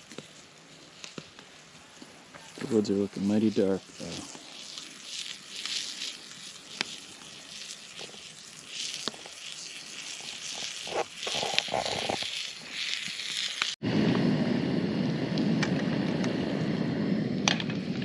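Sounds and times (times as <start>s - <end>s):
campfire crackling and hissing: 0.0s - 18.0s.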